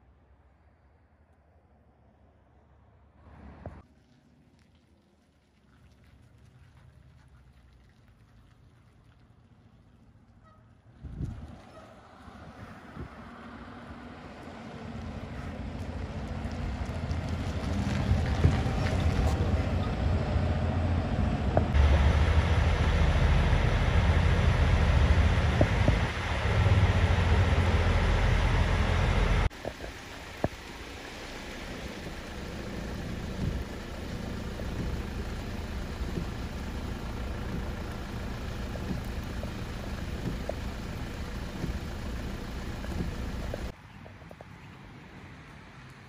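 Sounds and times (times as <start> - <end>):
tipper truck driving past: 9.1 - 29.5
diesel truck engine idling: 13.7 - 43.7.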